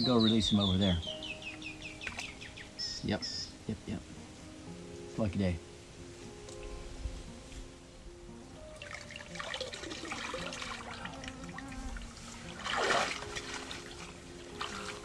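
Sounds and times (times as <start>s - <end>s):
background music with sustained notes: 0.0s - 15.0s
water splashing and trickling: 2.0s - 2.5s, 8.6s - 15.0s.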